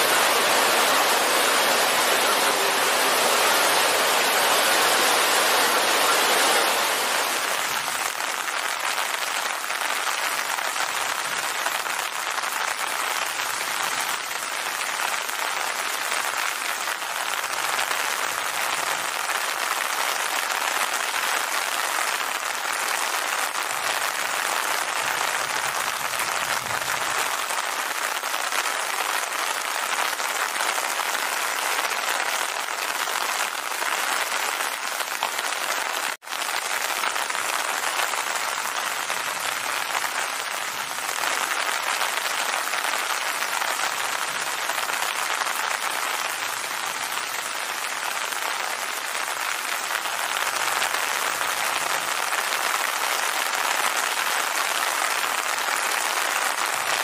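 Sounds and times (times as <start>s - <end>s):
steady rain: 0.0s - 57.0s.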